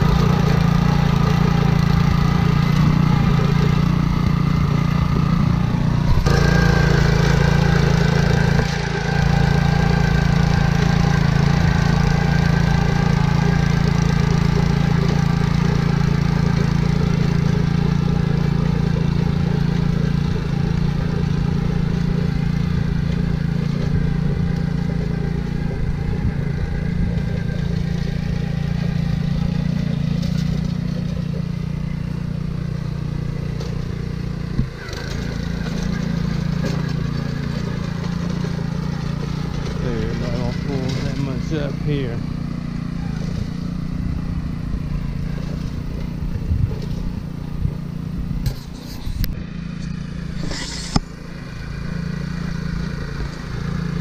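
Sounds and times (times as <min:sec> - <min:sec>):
small engine running steadily: 0:00.0 - 0:54.0.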